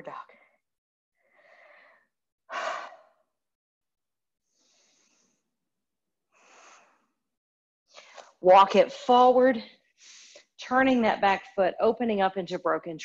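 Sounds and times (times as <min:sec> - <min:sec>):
person breathing: 0:01.2 - 0:03.2, 0:04.4 - 0:05.6, 0:06.3 - 0:07.2, 0:09.9 - 0:10.5.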